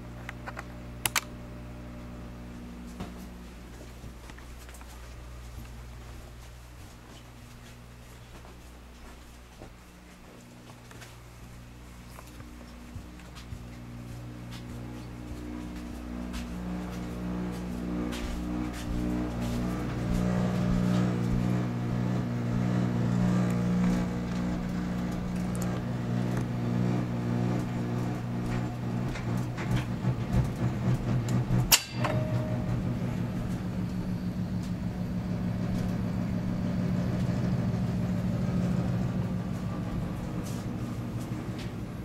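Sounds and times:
electric buzz: 0:12.2 - 0:29.5, 0:31.6 - 0:41.2
brief alarm tone: 0:31.8 - 0:34.5.

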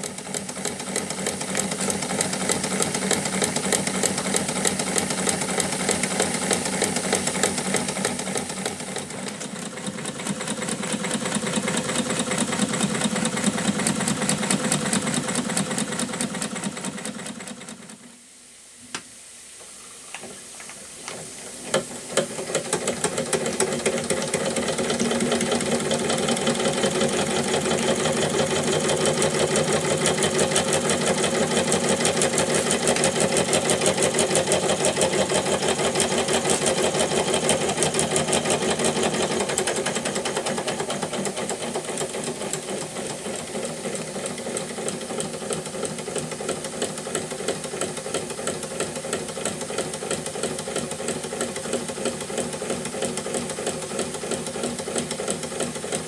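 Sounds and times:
steam hissing: 0:00.0 - 0:56.0
toy steam engine clattering: 0:21.7 - 0:56.0.

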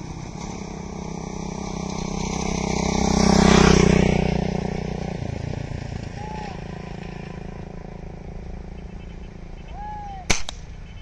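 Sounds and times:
vehicle engine passing by: 0:00.0 - 0:10.2.

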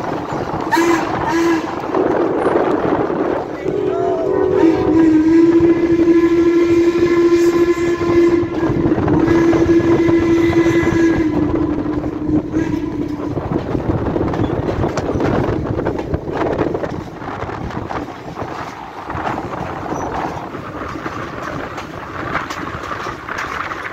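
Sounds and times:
train wheels clicking on rails: 0:00.0 - 0:03.5, 0:05.2 - 0:23.9
train horn blast: 0:00.7 - 0:14.6.

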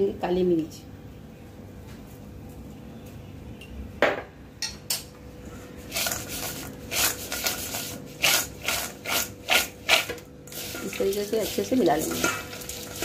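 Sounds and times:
nuts rattling in steel bowl: 0:05.9 - 0:13.0.

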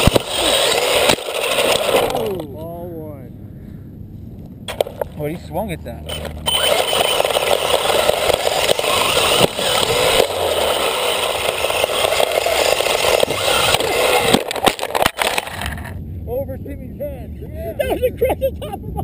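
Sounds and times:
rc car crunching through wood chips: 0:00.0 - 0:02.5, 0:04.7 - 0:05.2, 0:06.1 - 0:16.0.

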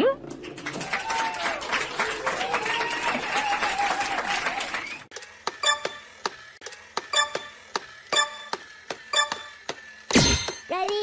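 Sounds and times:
clock-like ticking: 0:07.0 - 0:09.8.

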